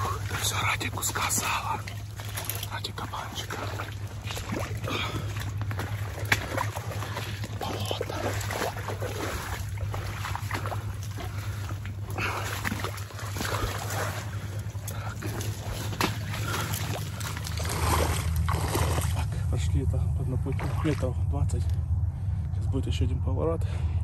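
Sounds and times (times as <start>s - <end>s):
water splashing and sloshing: 0.0s - 22.5s
steady low hum: 0.0s - 24.0s.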